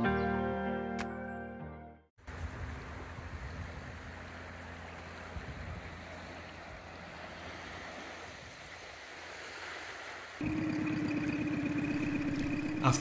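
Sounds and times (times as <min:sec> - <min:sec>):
small waves washing on shore: 0:02.2 - 0:13.0
outboard motor running: 0:10.4 - 0:13.0.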